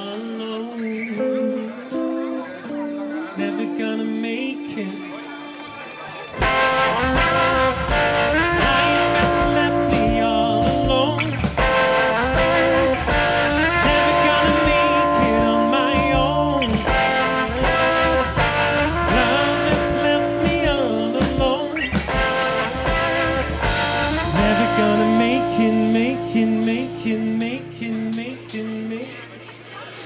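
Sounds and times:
man singing: 0:00.0 - 0:05.6, 0:06.5 - 0:23.3, 0:24.0 - 0:29.4
electric guitar: 0:00.0 - 0:30.0
electric bass: 0:06.4 - 0:29.4
drum kit: 0:06.4 - 0:30.0.

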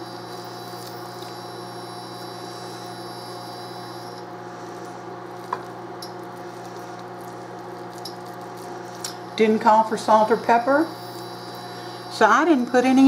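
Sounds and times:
thin high whine: 0:00.0 - 0:04.3, 0:10.2 - 0:13.0
induction cooktop humming: 0:00.0 - 0:13.0.

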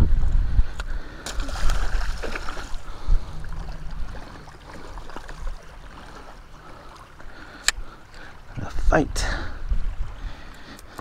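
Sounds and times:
wind buffeting microphone: 0:00.0 - 0:11.0
water lapping at shore: 0:00.8 - 0:11.0
sharp splashes: 0:01.2 - 0:07.0.

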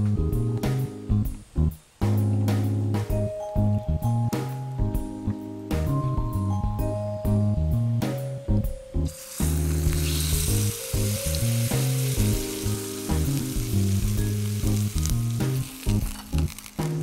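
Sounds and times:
background music: 0:00.0 - 0:17.0
batter sizzling in a skillet: 0:09.1 - 0:17.0.

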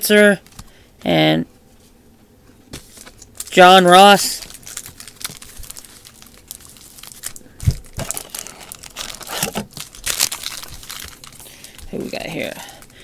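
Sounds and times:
cards rustling and clicking: 0:02.7 - 0:13.0
foil wrapper crinkling and tearing: 0:03.0 - 0:13.0.

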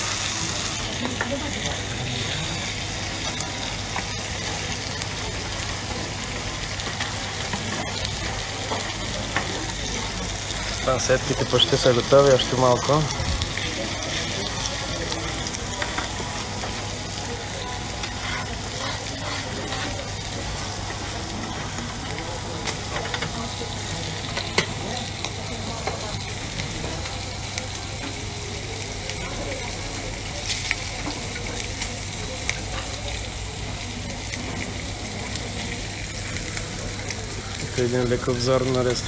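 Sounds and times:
meat sizzling on a griddle: 0:00.0 - 0:39.0.

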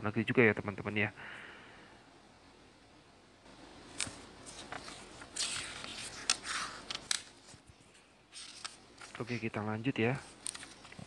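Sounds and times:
book pages turning: 0:03.9 - 0:09.5, 0:10.1 - 0:11.0.

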